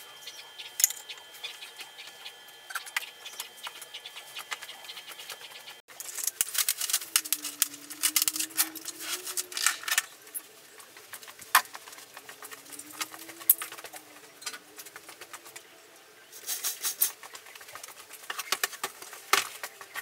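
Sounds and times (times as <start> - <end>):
metal tools clinking on workbench: 0.8 - 1.2
low wavering tone: 7.0 - 10.0.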